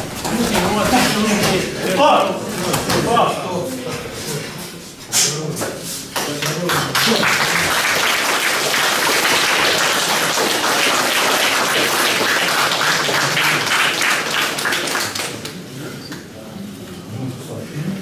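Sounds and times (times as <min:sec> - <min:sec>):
spectators applauding: 0:06.2 - 0:15.5.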